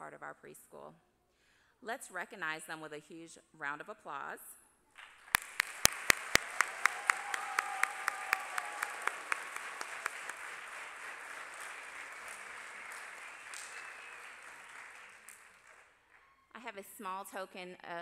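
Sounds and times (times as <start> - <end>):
audience applauding: 5.0 - 16.3
loud close hand claps: 5.0 - 16.3.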